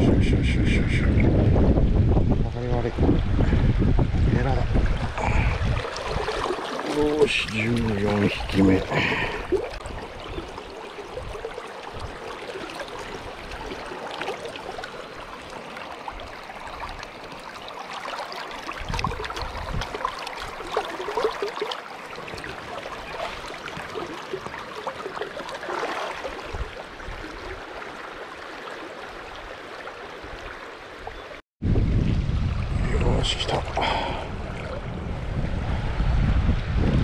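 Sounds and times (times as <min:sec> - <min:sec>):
river water rushing: 0:04.6 - 0:31.4.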